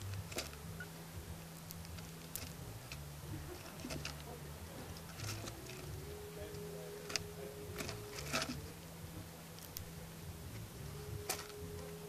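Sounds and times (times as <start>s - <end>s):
seeds shifting: 0.0s - 8.9s
low hum: 0.0s - 12.0s
squirrels gnawing seeds: 0.0s - 12.0s.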